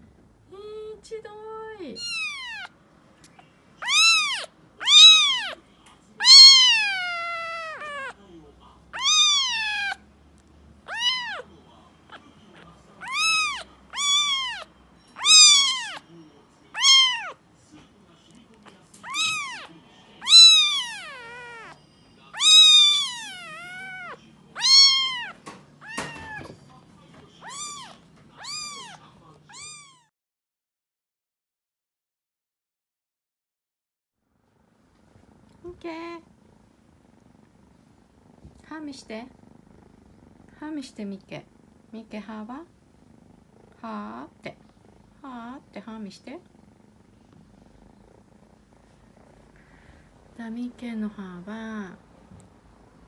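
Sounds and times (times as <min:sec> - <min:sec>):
kitten meowing: 0:01.9 - 0:02.8, 0:03.8 - 0:05.6, 0:06.2 - 0:08.2, 0:08.9 - 0:10.0, 0:10.8 - 0:11.5, 0:13.0 - 0:16.0, 0:16.7 - 0:17.4, 0:19.0 - 0:21.8, 0:22.4 - 0:26.6, 0:27.4 - 0:30.1.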